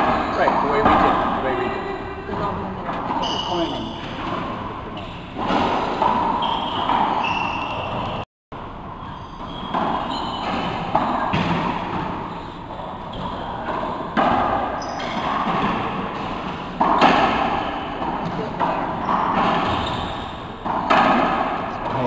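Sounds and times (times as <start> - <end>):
racquetball hits echoing: 0.0 - 8.2, 9.0 - 22.0
shoes squeaking on hardwood floor: 2.4 - 4.0, 6.2 - 8.2, 14.8 - 15.2, 19.0 - 20.4.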